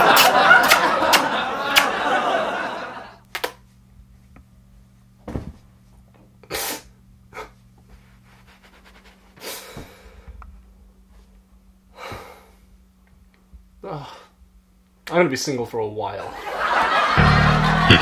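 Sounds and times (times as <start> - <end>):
faint steady hum: 0.0 - 18.0
man sniffling and crying: 8.3 - 10.2
voice: 15.1 - 16.3.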